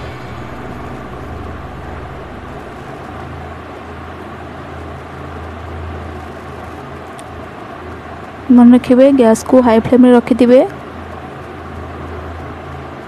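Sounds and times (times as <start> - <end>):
gas stove burner rumbling: 0.0 - 4.2.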